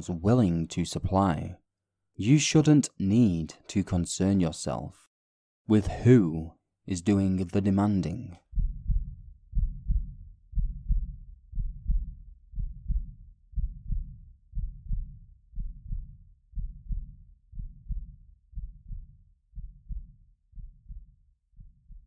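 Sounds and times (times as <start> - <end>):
heartbeat double thumps: 8.5 - 22.0.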